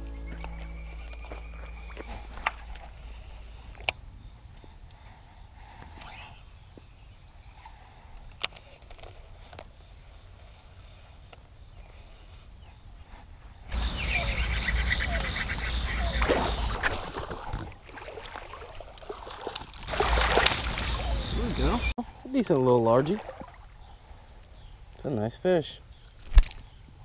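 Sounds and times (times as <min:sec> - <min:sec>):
crickets trilling faintly: 0:00.0 - 0:27.0
water splashing: 0:13.8 - 0:21.9, 0:22.8 - 0:23.9.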